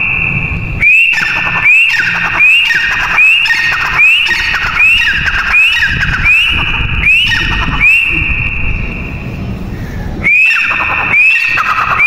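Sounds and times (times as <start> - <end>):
bird shrill high call: 10.2 - 12.0.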